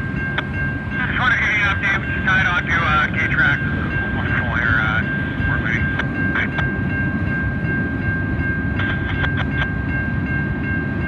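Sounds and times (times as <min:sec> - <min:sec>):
steady high-pitched tone: 0:00.0 - 0:11.0
train wheels rumbling on rails: 0:00.0 - 0:11.0.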